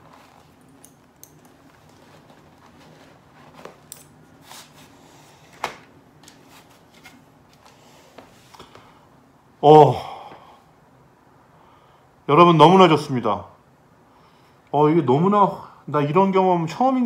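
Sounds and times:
fingers rustling on helmet: 0.0s - 5.6s.

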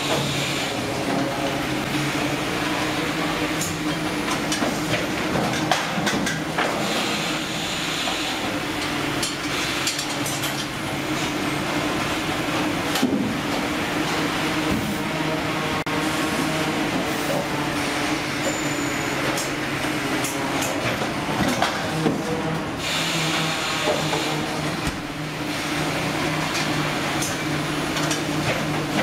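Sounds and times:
processing machinery humming: 0.0s - 29.0s
machine clicks and clattering: 3.6s - 6.8s, 8.8s - 10.8s.

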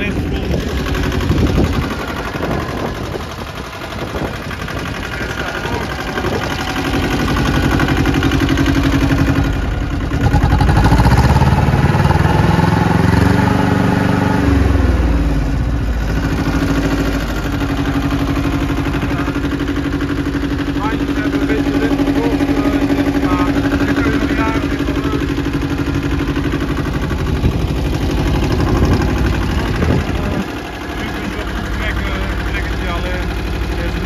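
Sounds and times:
tractor diesel engine revving: 0.0s - 34.0s.

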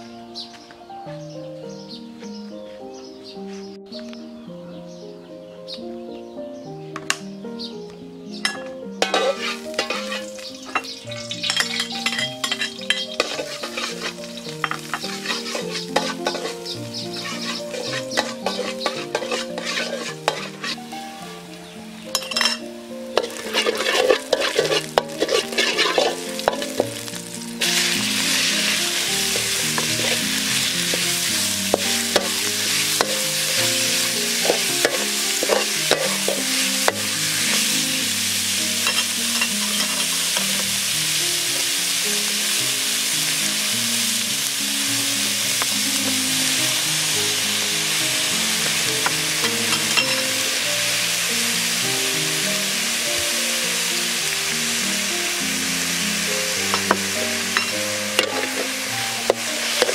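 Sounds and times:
metal ladle scraping wok: 8.4s - 21.0s, 22.1s - 40.7s, 47.4s - 50.8s, 56.5s - 59.9s
meat sizzling in hot oil: 8.4s - 59.9s.

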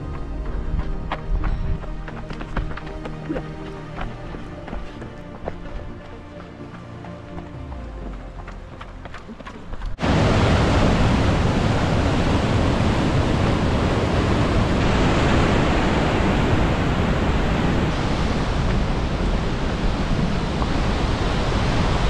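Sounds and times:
white water pouring over boulders: 10.0s - 22.0s.

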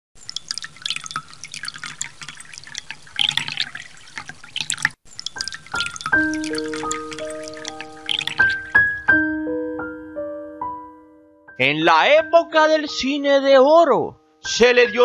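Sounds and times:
water drops dripping into water: 0.2s - 9.1s
slow ringing piano notes: 6.0s - 13.1s.

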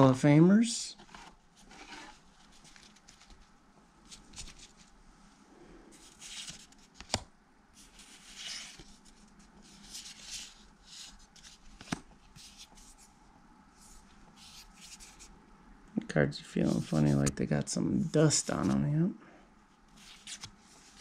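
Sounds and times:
cards sliding with soft swish: 13.8s - 15.3s, 16.6s - 17.4s.

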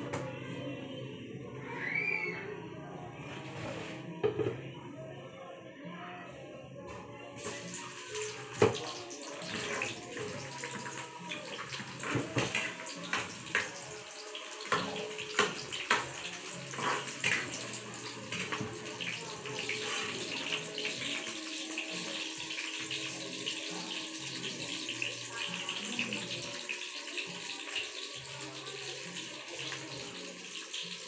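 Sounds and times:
garlic sizzling in oil: 7.4s - 31.0s.

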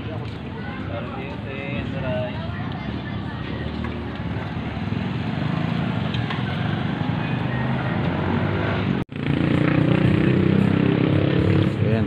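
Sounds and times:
street noise: 0.0s - 12.0s.

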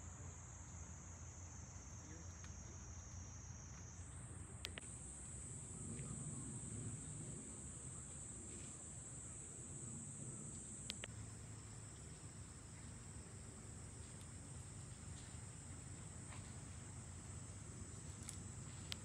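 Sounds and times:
insects chirring: 0.0s - 19.0s
faint sharp clicks: 4.6s - 4.9s, 10.5s - 11.1s, 18.2s - 19.0s.

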